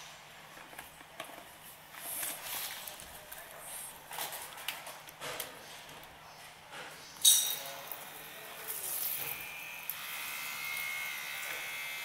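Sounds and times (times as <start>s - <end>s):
small water pump whining: 7.8s - 12.0s.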